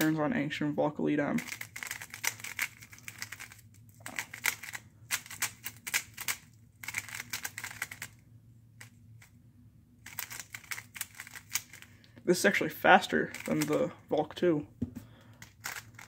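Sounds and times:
puzzle cube plastic clicking: 1.4 - 8.2, 10.0 - 12.1, 13.3 - 13.8, 15.3 - 16.0.

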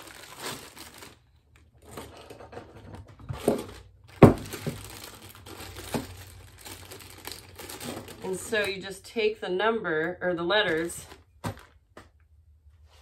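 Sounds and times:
plastic bag crinkling: 0.0 - 2.5, 3.2 - 9.0.

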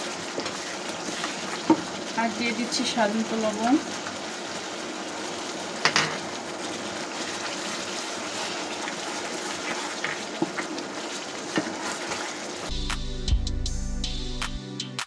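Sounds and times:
paste sizzling in a frying pan: 0.0 - 12.8
plastic spatula scraping: 0.3 - 1.8, 7.2 - 12.5.

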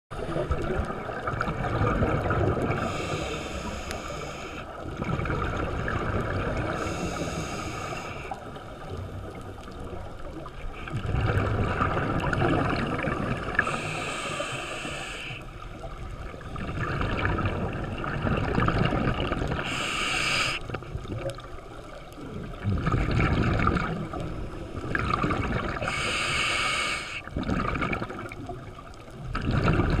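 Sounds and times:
low rush of water: 0.2 - 30.0
diver breathing through regulator: 2.7 - 4.7, 6.6 - 8.5, 13.5 - 15.6, 19.6 - 20.8, 25.8 - 27.3.

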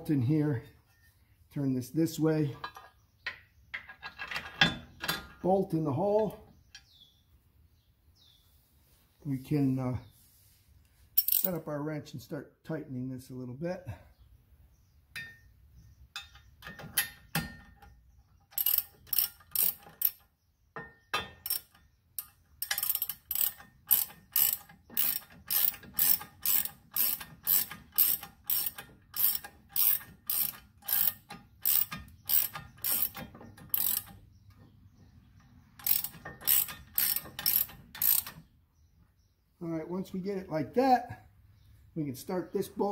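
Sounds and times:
ratchet wrench clicking: 11.2 - 11.6, 18.5 - 20.2, 21.4 - 34.2, 35.8 - 38.4.

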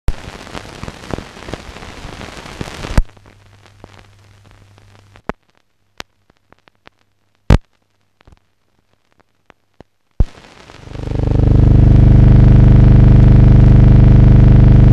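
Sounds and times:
faint hiss: 0.1 - 5.6, 10.2 - 11.1
sharp pops: 7.5 - 8.4, 9.8 - 10.9
low hum: 10.9 - 14.9.

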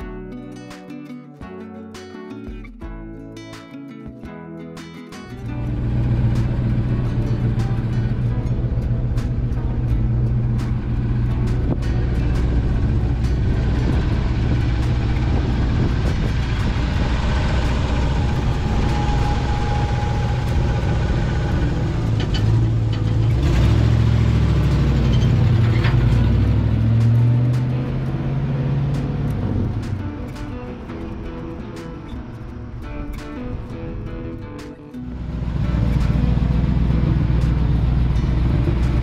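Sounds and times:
truck revving and driving away: 5.4 - 33.1, 35.1 - 39.0
truck engine idling: 5.6 - 32.8, 35.1 - 39.0.

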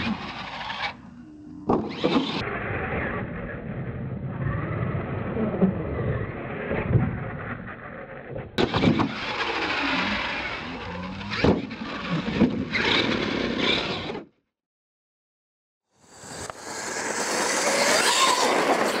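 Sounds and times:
toy truck motor revving: 0.0 - 1.1, 8.7 - 14.3, 16.1 - 19.0.

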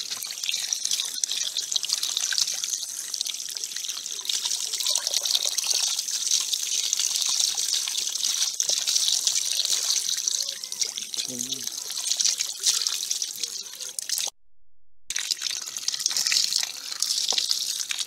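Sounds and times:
hands washing meat splashing: 0.0 - 14.3, 15.2 - 18.0
tap water running into metal bowl: 15.2 - 18.0.

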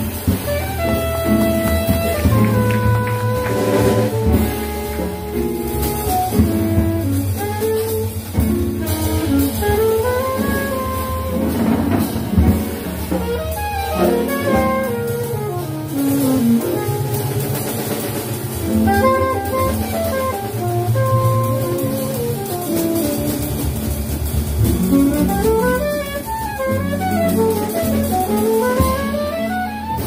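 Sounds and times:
drum kit with cymbals: 0.0 - 30.0
piano: 0.0 - 30.0
saxophone playing quick runs: 0.0 - 30.0
walking upright bass: 0.0 - 30.0.

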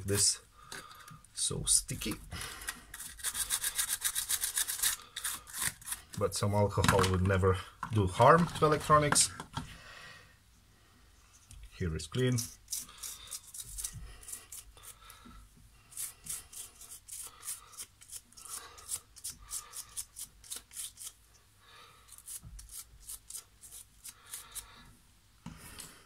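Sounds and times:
toothbrush scrubbing: 2.9 - 6.2, 12.4 - 15.0, 15.8 - 21.2, 22.1 - 24.7.

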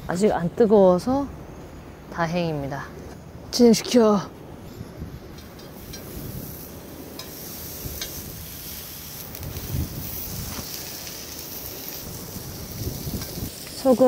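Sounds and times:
wind on microphone: 2.8 - 14.0
pork sizzling on a grill: 5.1 - 14.0.

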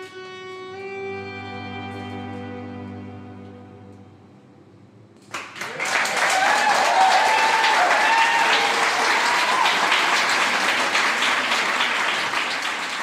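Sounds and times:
audience applauding and cheering: 5.3 - 13.0.

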